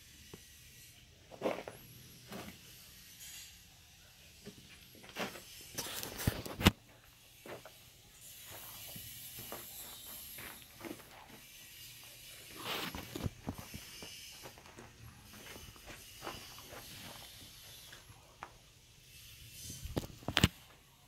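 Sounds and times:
footsteps and handling rustles: 1.2 - 2.6, 4.4 - 18.8.

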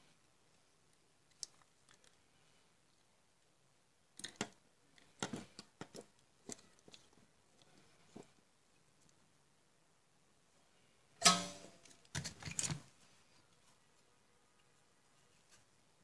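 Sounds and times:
plastic parts clicking and knocking: 4.2 - 8.2, 11.2 - 12.9.

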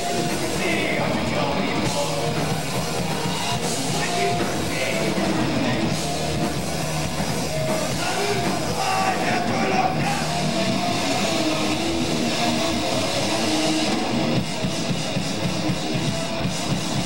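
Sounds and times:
heavy rock band playing: 0.0 - 17.0
shouted vocal: 7.4 - 14.0.

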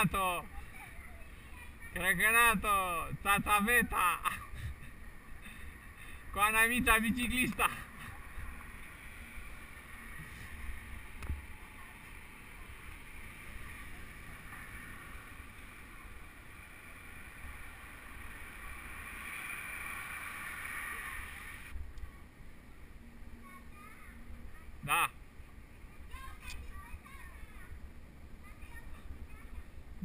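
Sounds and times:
bicycle tyres rolling on pavement: 4.6 - 21.9.

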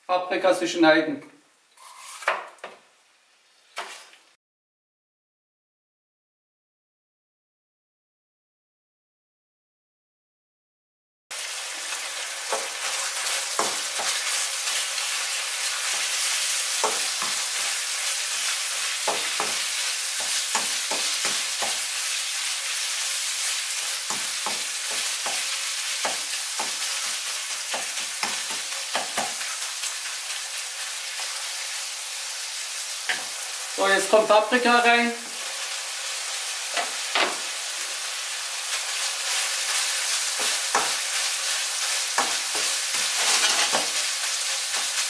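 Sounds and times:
meat sizzling in a pan: 1.8 - 2.3, 11.3 - 45.0.

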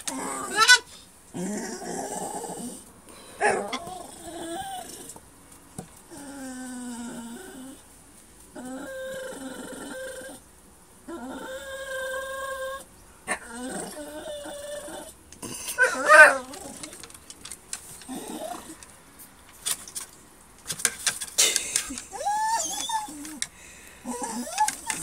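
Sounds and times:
dog whining: 0.0 - 2.8, 3.4 - 5.2, 6.1 - 7.8, 8.5 - 10.4, 11.1 - 17.1, 18.0 - 18.8, 21.9 - 25.0.

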